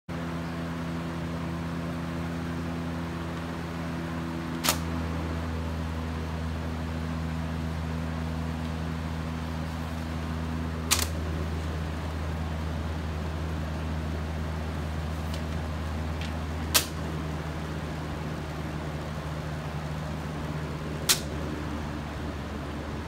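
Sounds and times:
box fan running: 0.1s - 23.0s
short sharp clicks: 4.6s - 4.9s, 21.1s - 21.4s.

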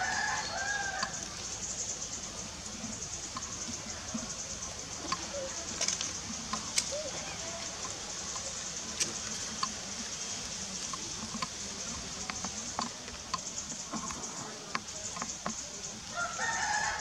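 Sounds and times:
steady high hiss: 0.0s - 17.0s
light clicks and crackles: 2.8s - 16.2s.

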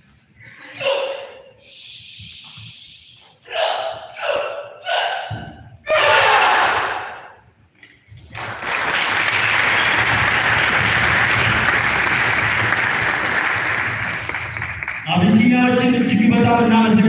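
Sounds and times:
audience applauding: 8.3s - 15.4s.

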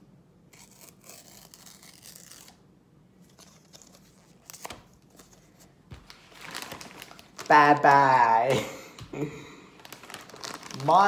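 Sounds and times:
card tearing and rustling: 0.5s - 2.6s, 3.2s - 8.4s, 9.8s - 11.0s.

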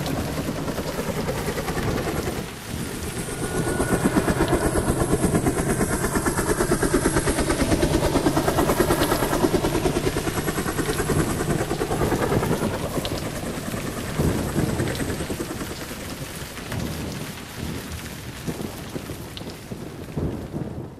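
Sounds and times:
heavy rain downpour: 0.0s - 20.9s.

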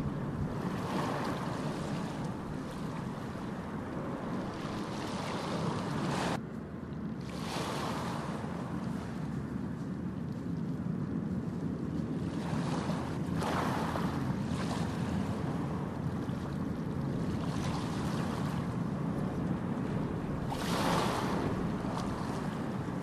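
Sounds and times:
ocean waves breaking on beach: 0.0s - 6.4s, 7.1s - 9.8s, 11.6s - 23.0s.

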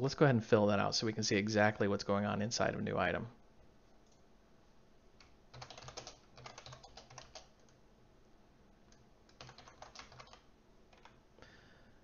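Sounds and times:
faint keyboard typing: 3.9s - 4.3s, 5.2s - 7.8s, 8.8s - 11.2s.

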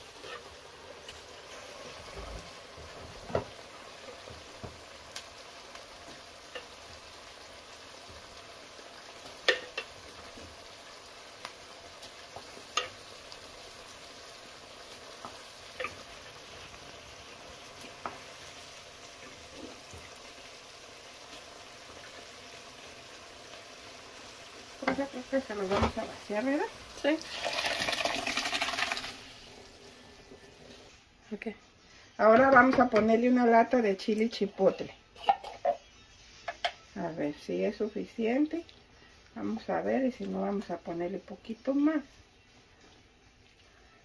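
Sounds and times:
food sizzling in oil: 0.0s - 31.4s
wooden spoon knocking on pots: 24.8s - 26.1s, 32.2s - 33.2s.

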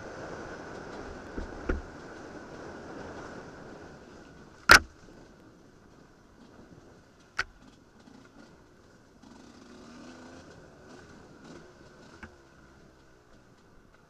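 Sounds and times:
muffled dirt bike engine: 0.0s - 14.0s
sharp knocks: 4.7s - 4.9s.

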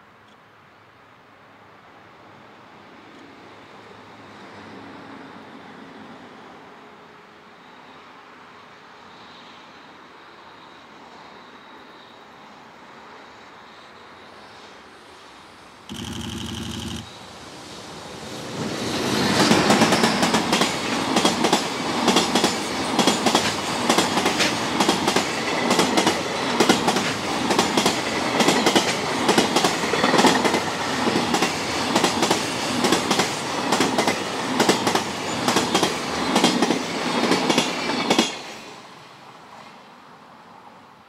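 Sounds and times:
train wheels clickety-clack: 18.7s - 38.7s.

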